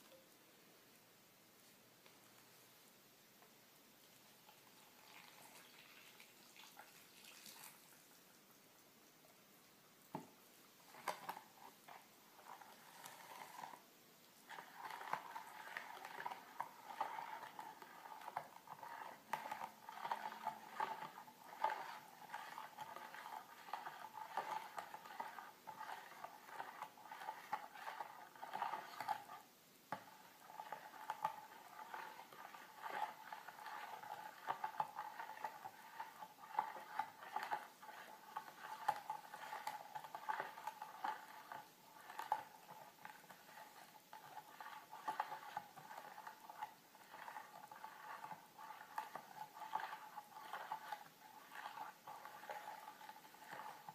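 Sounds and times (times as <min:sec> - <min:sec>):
spoon clinking and scraping bowl: 0:14.5 - 0:29.4, 0:30.0 - 0:53.9.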